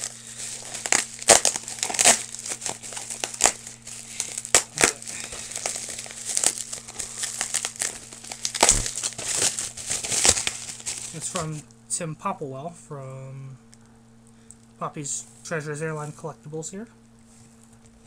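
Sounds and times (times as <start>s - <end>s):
bubble wrap crinkling: 0.0s - 11.6s.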